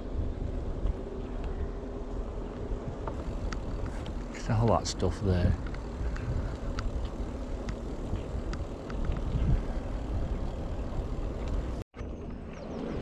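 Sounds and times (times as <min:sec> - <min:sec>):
wind rumbling on microphone: 0:00.0 - 0:13.0
small ticks: 0:02.5 - 0:04.3, 0:05.5 - 0:11.8.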